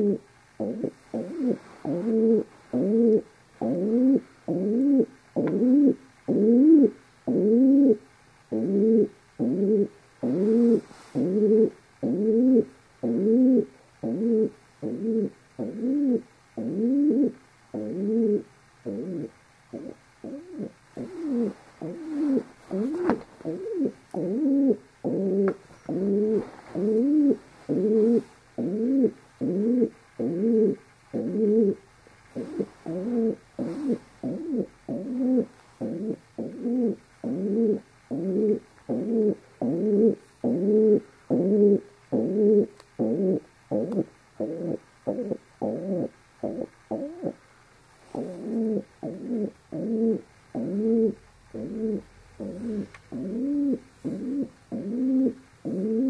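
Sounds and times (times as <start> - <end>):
pigeon cooing: 0.0 - 31.8, 32.4 - 47.4, 48.1 - 56.0.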